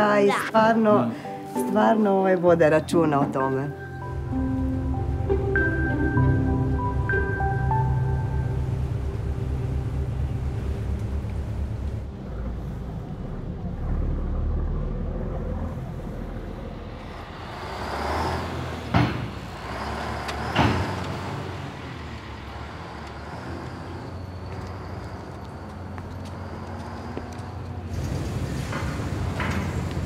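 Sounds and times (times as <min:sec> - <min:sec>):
truck driving past: 0:03.9 - 0:30.0
low steady rumble: 0:04.2 - 0:17.0.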